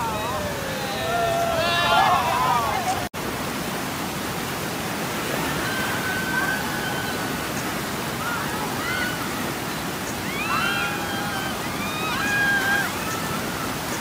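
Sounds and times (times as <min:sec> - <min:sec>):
river rushing through rapids: 0:00.0 - 0:14.0.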